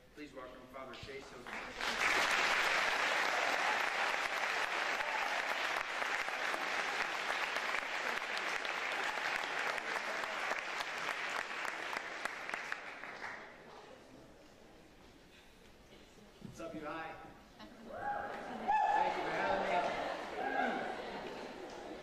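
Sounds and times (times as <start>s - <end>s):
audience applauding: 1.3s - 13.7s, 18.4s - 22.0s.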